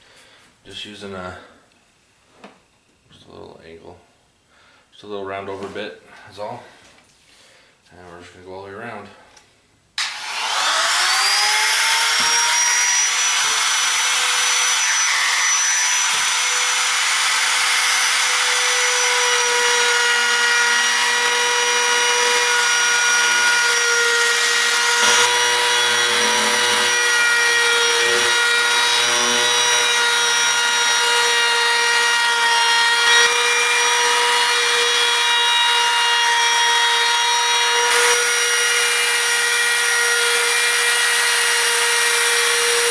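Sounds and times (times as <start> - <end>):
router bit rasping wood: 10.0 - 42.9
router motor whining: 10.0 - 42.9.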